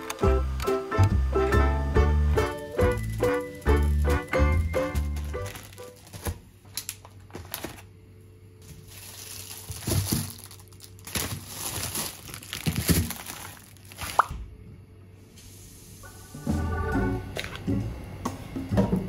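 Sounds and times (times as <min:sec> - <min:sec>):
faint steady hum: 0:00.0 - 0:19.0
plastic packaging crinkling: 0:02.4 - 0:08.0, 0:08.6 - 0:14.3.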